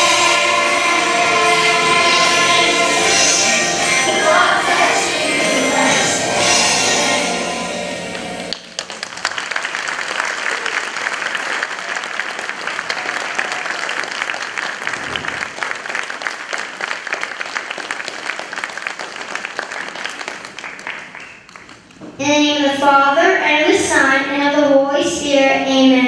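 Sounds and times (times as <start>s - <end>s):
audience applause: 0.0s - 5.9s, 8.5s - 22.0s
music: 0.0s - 8.5s.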